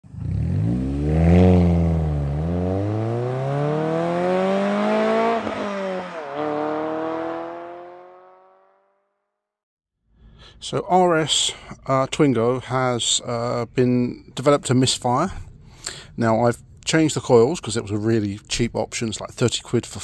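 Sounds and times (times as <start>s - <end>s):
car engine accelerating: 0.0s - 9.0s.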